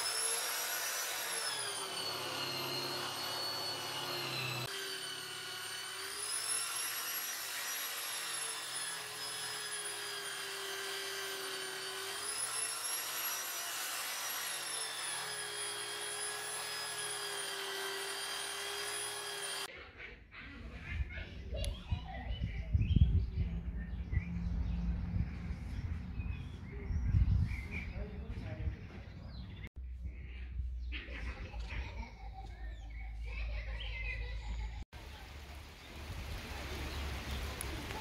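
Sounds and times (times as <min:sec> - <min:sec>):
angle grinder motor whine: 0:00.0 - 0:19.7.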